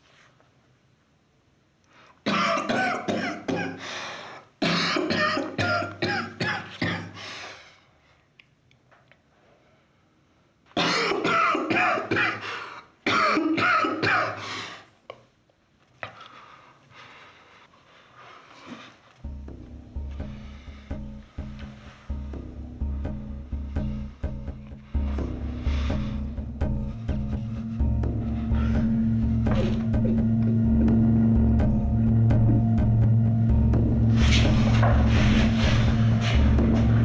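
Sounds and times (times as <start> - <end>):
man coughing hard: 2.3 - 3.8, 4.6 - 7.2, 10.8 - 14.4.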